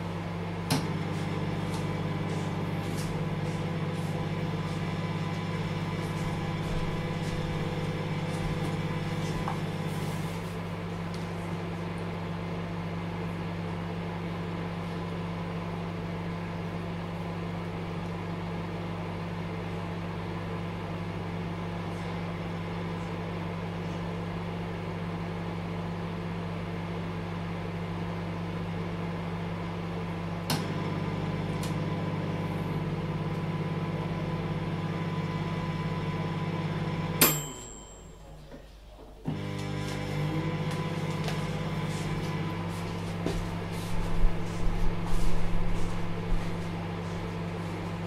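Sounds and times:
microwave oven humming: 0.0s - 48.0s
microwave timer click: 37.1s - 38.2s
timer ding: 37.2s - 38.4s.

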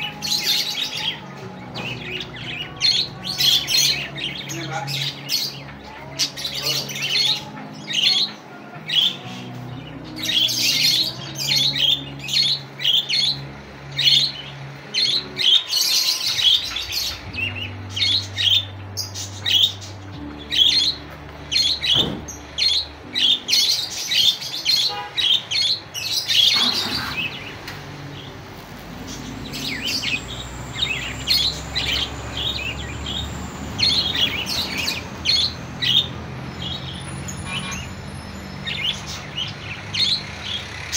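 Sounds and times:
budgerigars chirping: 0.0s - 40.9s.

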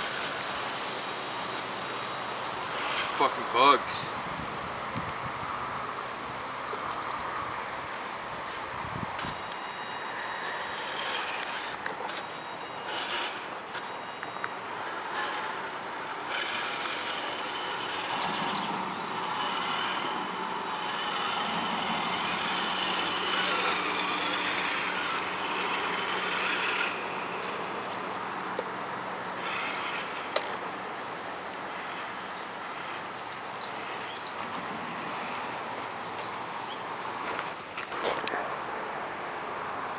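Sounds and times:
toy truck electric motor whining: 0.0s - 4.1s, 7.7s - 34.5s.

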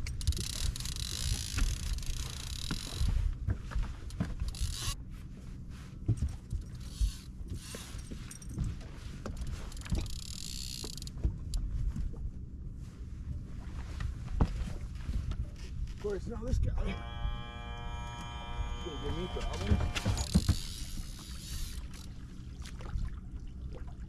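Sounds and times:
fishing reel whirring: 0.2s - 3.1s, 4.5s - 5.0s, 10.1s - 11.1s, 16.8s - 22.1s
wind rumble on microphone: 11.2s - 16.8s
knocks on boat: 19.4s - 20.6s.

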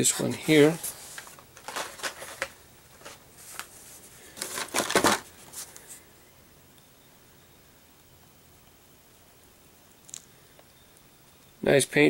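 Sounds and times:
plastic packs rustling and clacking: 0.1s - 5.9s.

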